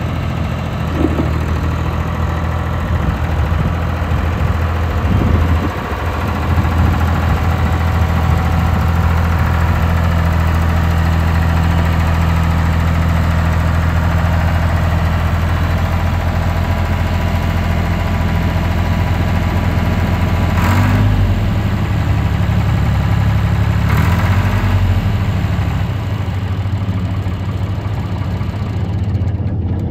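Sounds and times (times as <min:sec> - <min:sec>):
tractor diesel engine running: 0:00.0 - 0:29.9.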